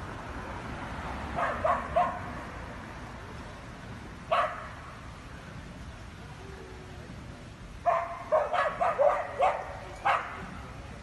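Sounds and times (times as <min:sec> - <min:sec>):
dog barking: 0:01.4 - 0:02.3, 0:04.3 - 0:04.7, 0:07.8 - 0:10.4.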